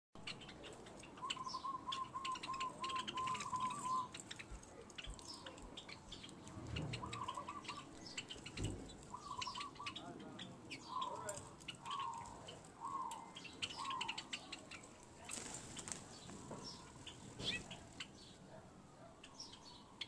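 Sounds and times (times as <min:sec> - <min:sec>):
sparrows chirping: 0:00.2 - 0:20.0
low warbling bird call: 0:01.2 - 0:04.2, 0:06.6 - 0:14.5.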